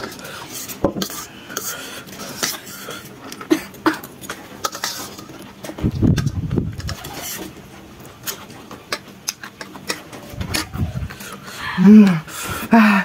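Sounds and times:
chewing and slurping: 0.0s - 11.6s
muffled rush of noise: 10.2s - 11.7s.

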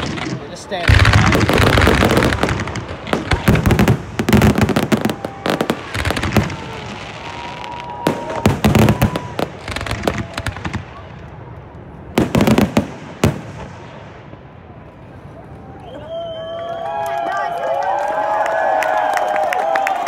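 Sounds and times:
firework crackling: 0.0s - 14.8s.

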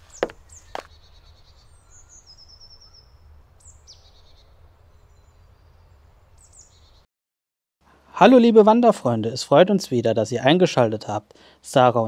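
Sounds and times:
footsteps: 0.0s - 0.9s.

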